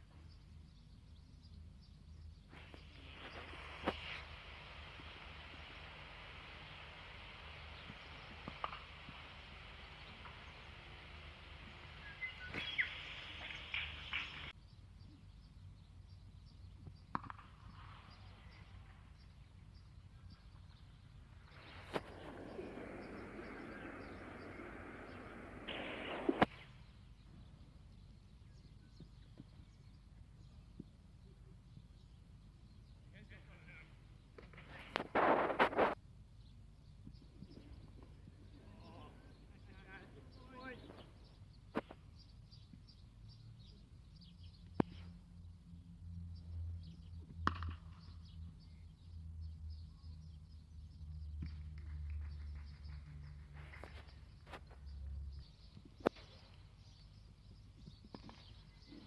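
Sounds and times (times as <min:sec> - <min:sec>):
birds chirping: 0:00.0 - 0:59.0
faint outdoor ground noise: 0:00.0 - 0:59.0
sharp cracks: 0:07.5 - 0:14.6, 0:21.6 - 0:26.7
cricket bat striking ball: 0:47.4 - 0:47.8.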